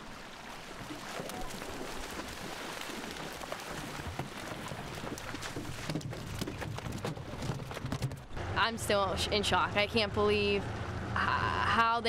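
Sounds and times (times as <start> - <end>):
fish splashing in water: 0.0 - 7.8
boat motor humming: 0.0 - 12.0.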